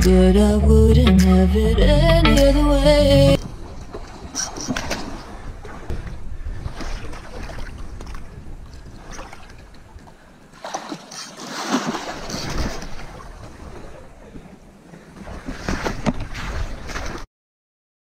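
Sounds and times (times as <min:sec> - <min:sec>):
fish thrashing and splashing in water: 0:10.6 - 0:13.4.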